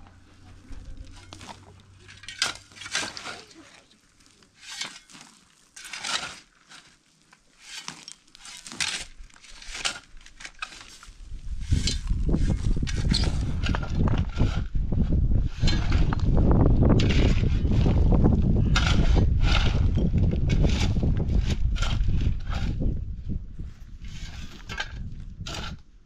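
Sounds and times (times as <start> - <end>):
crinkling and rustling: 0.3 - 14.6.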